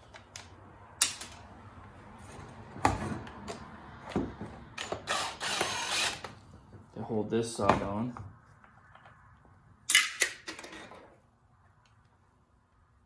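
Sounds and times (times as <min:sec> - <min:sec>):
drill driver running: 0:04.8 - 0:06.3.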